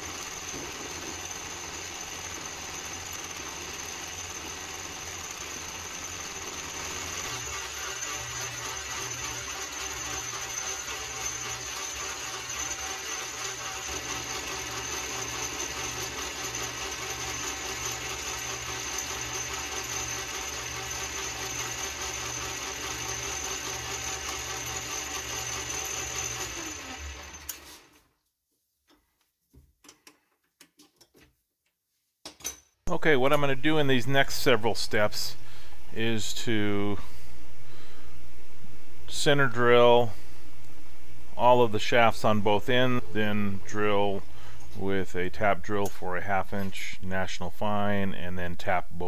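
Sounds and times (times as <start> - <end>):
metal lathe running: 0.0 - 27.8
lathe winding down: 0.0 - 27.9.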